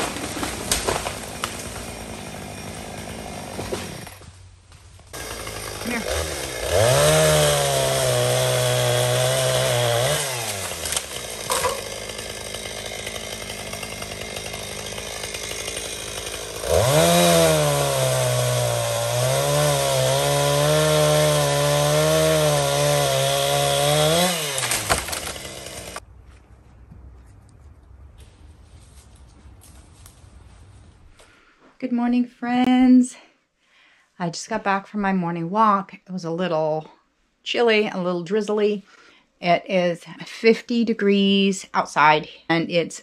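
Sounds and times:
chainsaw cutting wood: 0:00.0 - 0:04.4, 0:05.0 - 0:26.1.

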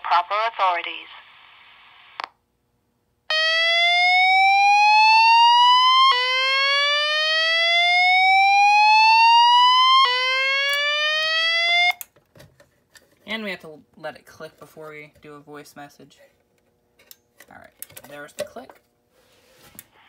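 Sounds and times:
whoop evacuation tone: 0:03.3 - 0:12.0.

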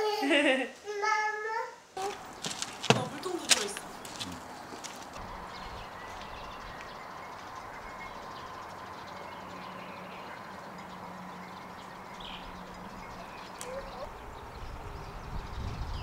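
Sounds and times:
faint bird chirps: 0:05.3 - 0:16.0.

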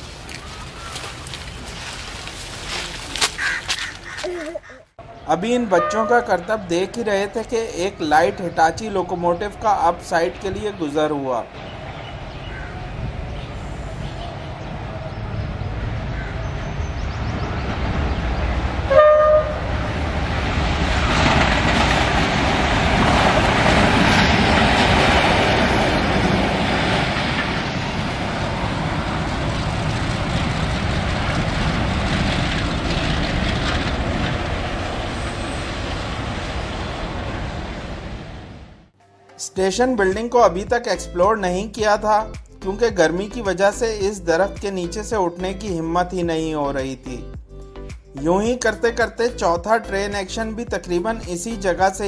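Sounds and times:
locomotive engine and wheel rumble: 0:00.0 - 0:39.0
locomotive horn blast: 0:05.6 - 0:06.5, 0:18.8 - 0:20.1.

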